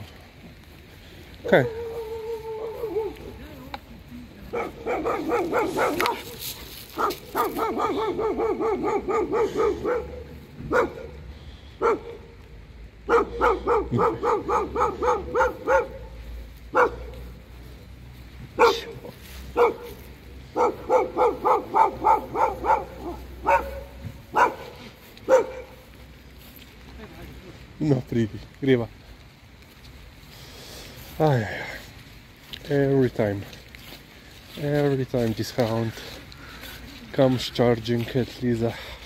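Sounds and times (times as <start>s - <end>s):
hound barking: 1.4s - 3.4s, 4.4s - 12.4s, 13.0s - 17.5s, 18.5s - 25.9s.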